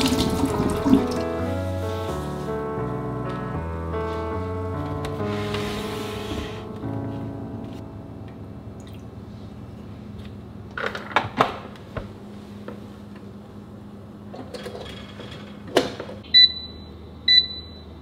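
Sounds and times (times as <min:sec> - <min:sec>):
rice cooker two-tone beep: 0:16.3 - 0:18.0.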